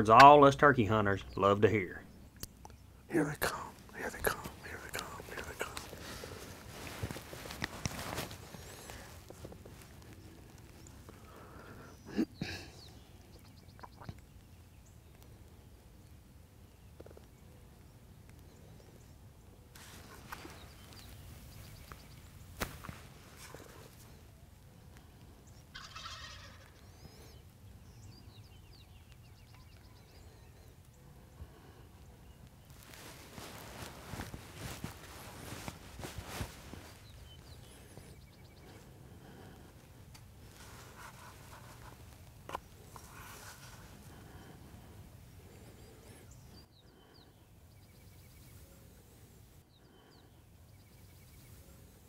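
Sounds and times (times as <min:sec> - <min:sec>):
outdoor background hush: 0:00.0 - 0:52.0
distant turkey gobbling: 0:25.7 - 0:26.8.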